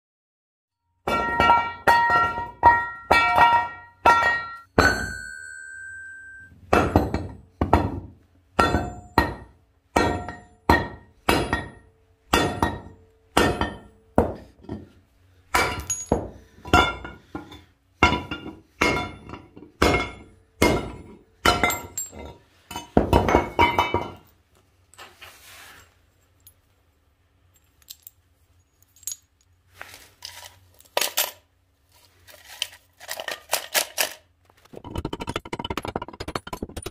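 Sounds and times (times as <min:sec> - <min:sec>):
hammer striking metal: 0:01.0 - 0:14.8, 0:15.5 - 0:24.1
metal pieces clinking into tin can: 0:30.2 - 0:31.5, 0:32.3 - 0:36.9.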